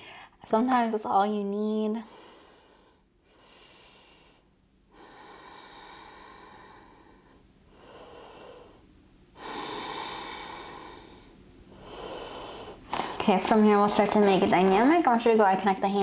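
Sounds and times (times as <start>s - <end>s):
person breathing: 0.0s - 0.4s, 2.0s - 13.3s.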